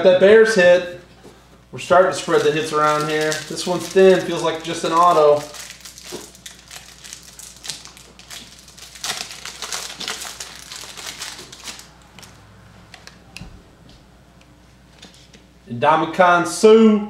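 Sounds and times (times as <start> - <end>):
foil wrapper crinkling: 2.1 - 12.4
cards being handled: 2.3 - 13.4.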